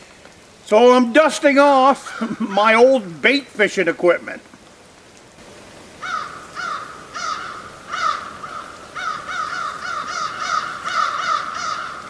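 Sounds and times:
crows cawing: 0:02.0 - 0:02.8, 0:06.0 - 0:12.0.

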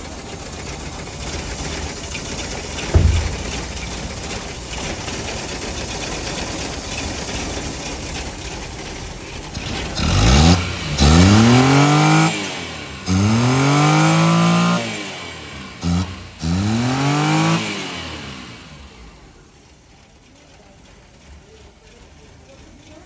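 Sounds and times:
petrol engine revving: 0:01.2 - 0:19.5.

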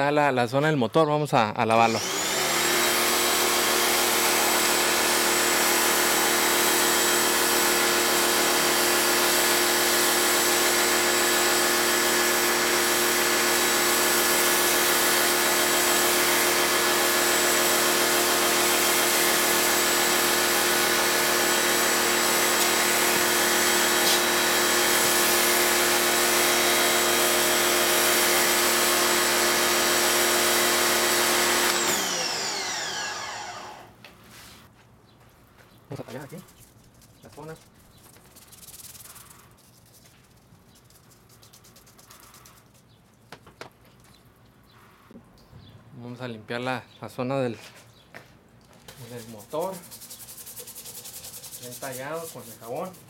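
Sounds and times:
pressure washer motor whine: 0:01.9 - 0:34.0.

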